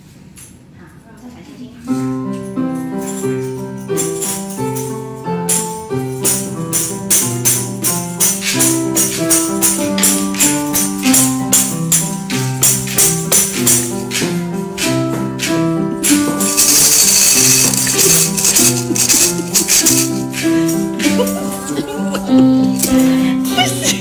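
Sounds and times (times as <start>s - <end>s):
digital piano tune: 1.9s - 24.0s
shaker rattling: 1.9s - 24.0s.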